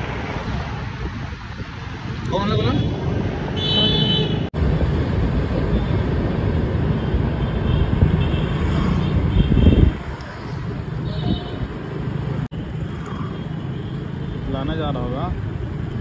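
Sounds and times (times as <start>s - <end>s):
road and engine noise: 0.0s - 16.0s
wind rumble on microphone: 0.1s - 3.4s, 7.7s - 11.7s.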